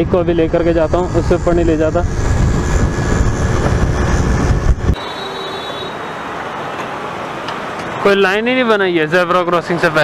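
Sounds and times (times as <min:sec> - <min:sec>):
wind buffeting microphone: 0:00.0 - 0:05.0
road hiss: 0:00.4 - 0:09.6
faint thin high whine: 0:05.0 - 0:06.8.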